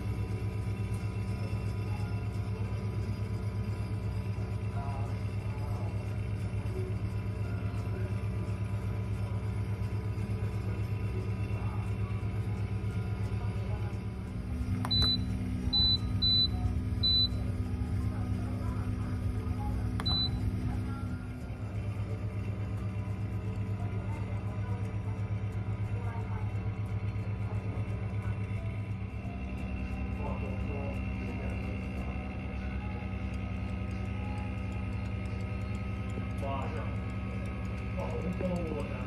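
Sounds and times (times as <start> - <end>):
oven fan humming: 0.0 - 39.0
short high beeps: 20.0 - 20.4.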